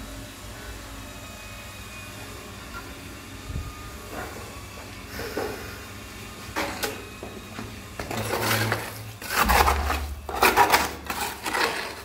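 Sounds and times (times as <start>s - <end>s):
tool scraping wet mortar: 8.0s - 12.0s.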